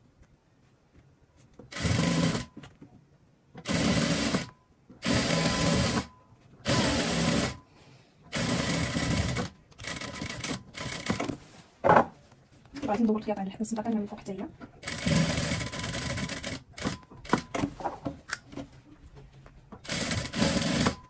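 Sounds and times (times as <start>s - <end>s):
sewing machine stitching: 1.7s - 2.5s, 3.6s - 7.6s, 8.3s - 11.4s, 14.8s - 17.6s, 19.8s - 21.0s.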